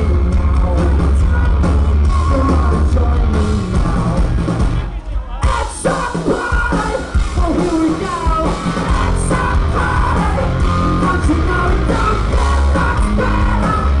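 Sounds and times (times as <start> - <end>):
bass guitar: 0.0 - 14.0
man singing lead vocal: 0.0 - 14.0
electric guitar: 8.4 - 14.0.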